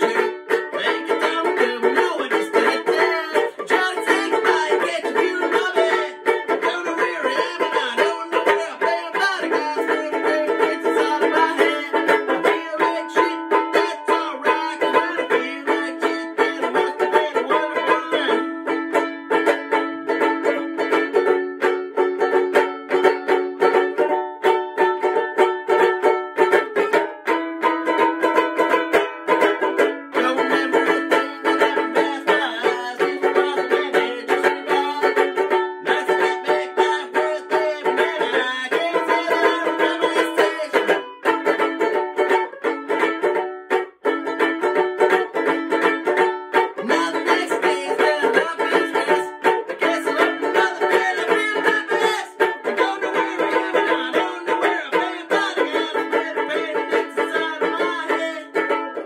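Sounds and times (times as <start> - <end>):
man singing: 0.0 - 19.6, 29.3 - 41.7, 46.5 - 59.0
banjo ukulele strummed: 0.0 - 59.0.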